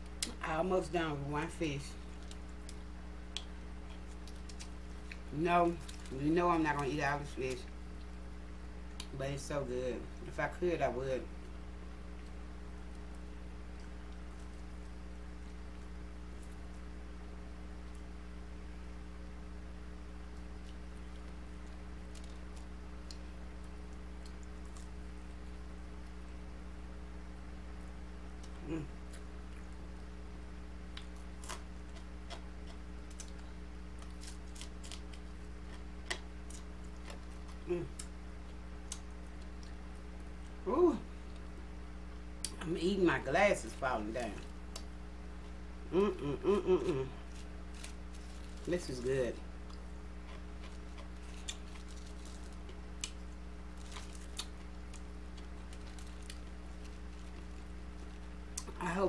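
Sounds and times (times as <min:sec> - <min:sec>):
steady electrical hum: 0:00.0 - 0:59.0
person chewing with lip smacks: 0:02.0 - 0:06.1, 0:30.9 - 0:40.6, 0:49.6 - 0:58.8
person humming mm: 0:28.6 - 0:29.0, 0:37.6 - 0:38.0, 0:45.9 - 0:47.3.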